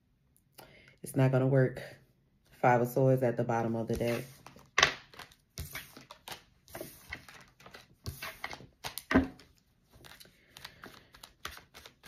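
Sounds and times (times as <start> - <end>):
cards being shuffled: 3.9 - 12.0.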